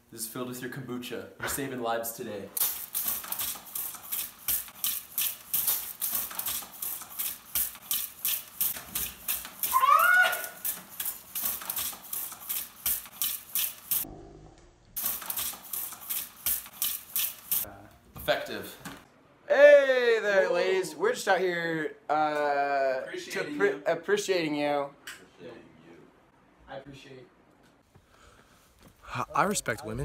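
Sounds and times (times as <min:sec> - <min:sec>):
water gun pumping: 0:02.6 - 0:14.0, 0:15.0 - 0:17.7
water stream squirting: 0:02.6 - 0:14.0, 0:15.0 - 0:17.7.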